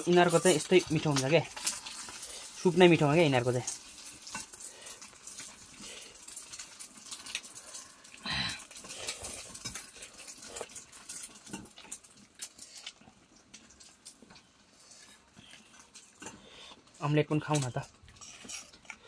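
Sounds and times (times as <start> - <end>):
chewing: 3.7 - 17.0.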